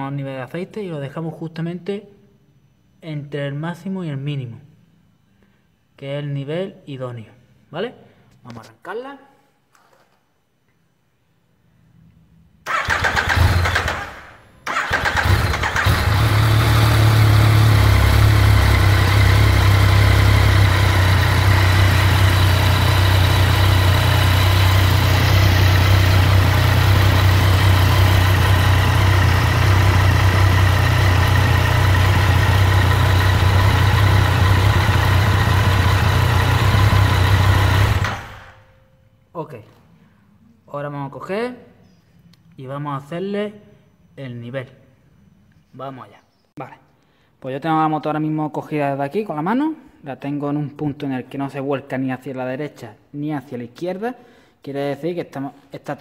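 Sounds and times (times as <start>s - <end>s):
motorcycle engine idling: 14.7s - 38.6s.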